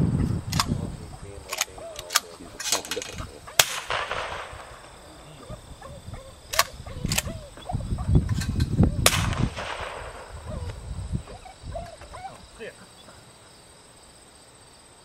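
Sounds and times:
low rumble on microphone: 0:00.0 - 0:12.6
shotgun shots with echo: 0:01.4 - 0:05.2, 0:09.0 - 0:10.6.

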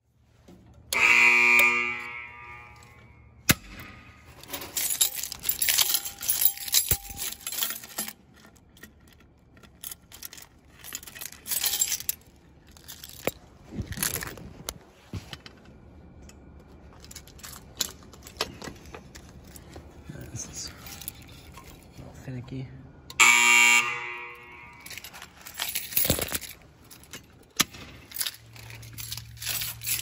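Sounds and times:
fire alarm signal: 0:00.9 - 0:03.4, 0:23.1 - 0:25.0
metal clicks and rattling: 0:03.7 - 0:14.8, 0:24.7 - 0:30.0.

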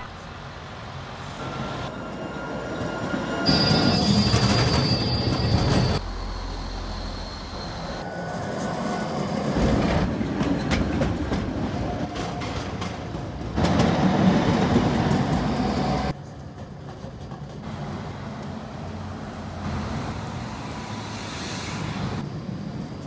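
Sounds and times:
tram wheels rumbling on rail: 0:00.0 - 0:23.0
high wheel squeal: 0:01.4 - 0:09.5.

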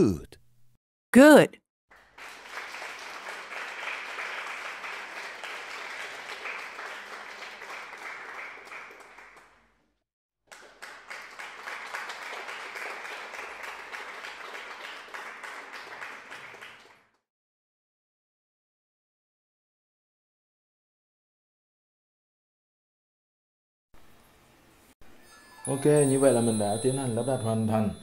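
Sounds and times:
dense clapping: 0:02.0 - 0:09.5, 0:10.5 - 0:17.0.

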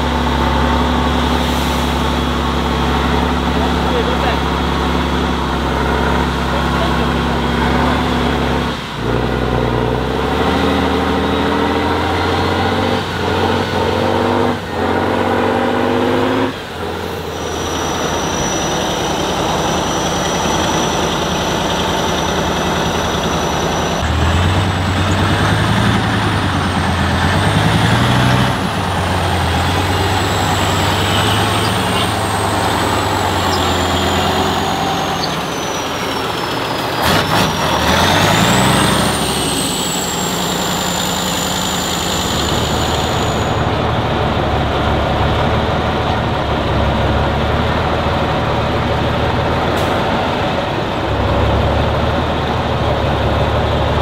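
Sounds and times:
diesel truck engine revving: 0:00.0 - 0:54.0
high gliding whistle: 0:17.0 - 0:24.1, 0:29.5 - 0:36.9, 0:38.8 - 0:43.6.

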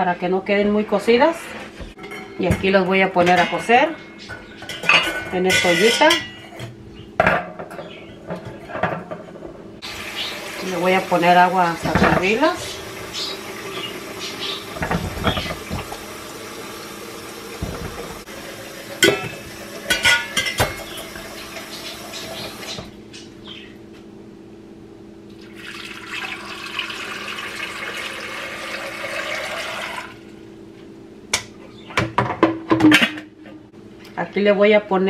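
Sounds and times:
water pouring into pot: 0:09.8 - 0:11.9, 0:25.4 - 0:30.2.

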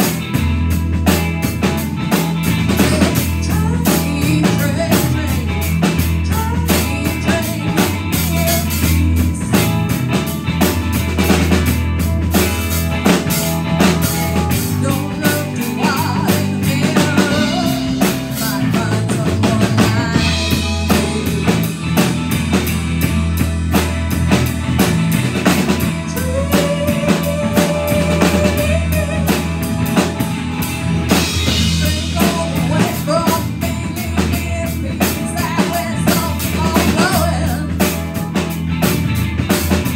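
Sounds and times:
drum kit beat: 0:00.0 - 0:39.9
electric bass: 0:00.0 - 0:39.9
electric guitar: 0:00.0 - 0:39.9
keyboard: 0:00.0 - 0:39.9.

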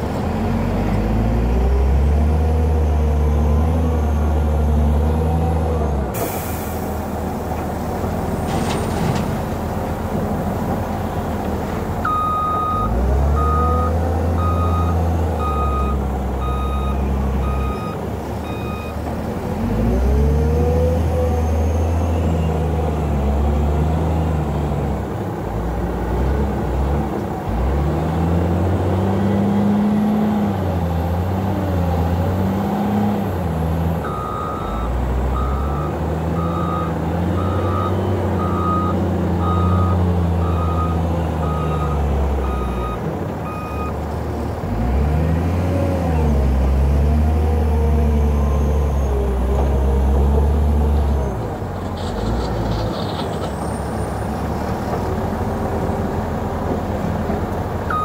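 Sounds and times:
diesel engine revving: 0:00.0 - 0:58.0
reversing alarm beeps: 0:12.1 - 0:19.0, 0:34.1 - 0:43.9.

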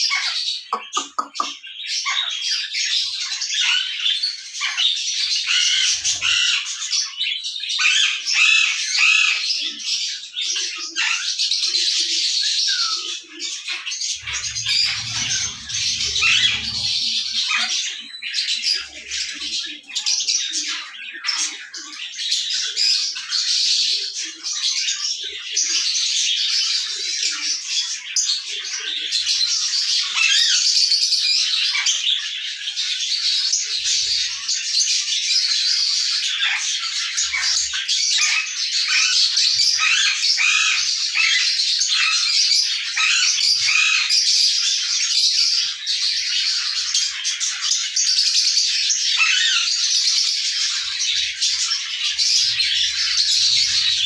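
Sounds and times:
high bird chatter: 0:00.0 - 0:54.0
birds squawking: 0:00.1 - 0:02.3, 0:05.3 - 0:06.8, 0:12.8 - 0:19.8, 0:50.7 - 0:54.0.

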